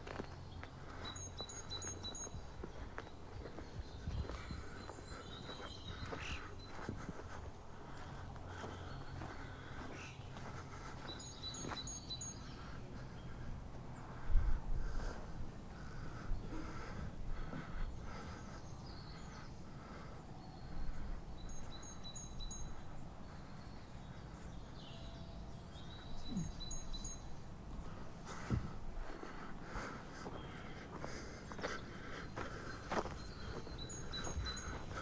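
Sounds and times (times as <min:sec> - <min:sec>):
footsteps on snow: 0:00.0 - 0:13.1, 0:27.7 - 0:35.0
small birds chirping: 0:00.0 - 0:35.0.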